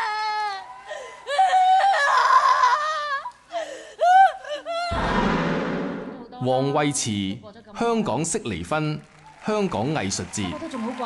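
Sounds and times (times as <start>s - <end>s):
woman crying out and gasping: 0.0s - 4.9s.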